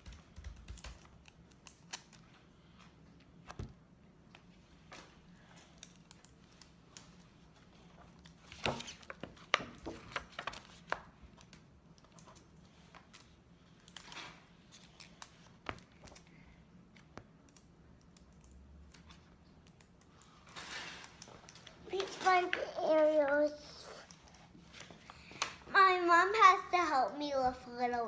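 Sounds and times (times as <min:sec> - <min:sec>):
paper and tape rustling: 0:04.4 - 0:16.4, 0:20.2 - 0:25.6.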